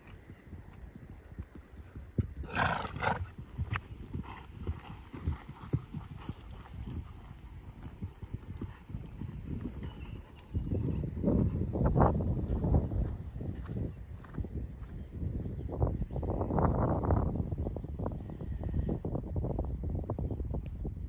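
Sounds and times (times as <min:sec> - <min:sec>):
hooves thudding on sand: 0:00.0 - 0:13.8
horse breathy snort: 0:02.4 - 0:03.3.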